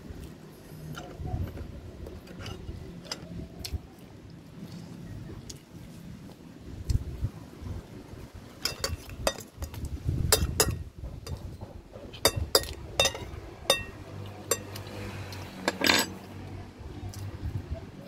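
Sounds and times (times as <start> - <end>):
metal spoon clinking on ceramic bowl: 8.7 - 9.5, 12.2 - 14.7.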